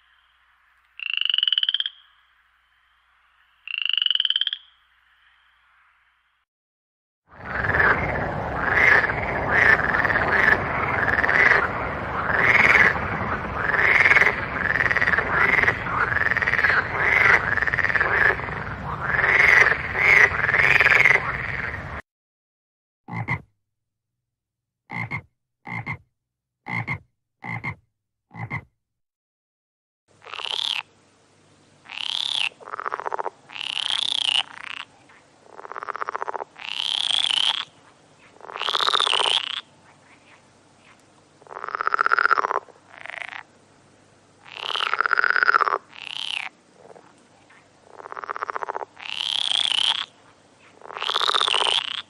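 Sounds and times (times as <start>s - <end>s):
frogs croaking: 0.0s - 6.4s, 7.3s - 22.0s, 30.2s - 30.9s, 31.8s - 43.5s, 44.4s - 52.0s.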